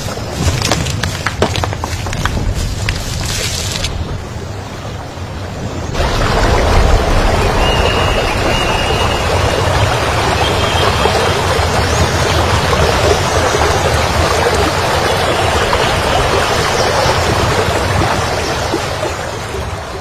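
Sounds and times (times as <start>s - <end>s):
river rushing over rocks: 5.9s - 20.0s.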